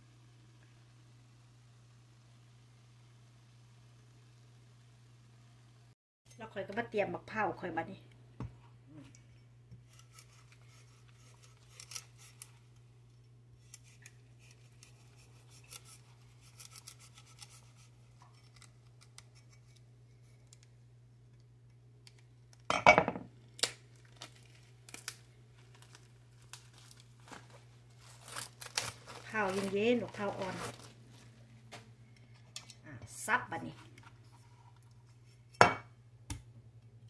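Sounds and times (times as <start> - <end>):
plastic crackle: 23.4 - 31.9
plastic rubbing and scratching: 26.7 - 31.4.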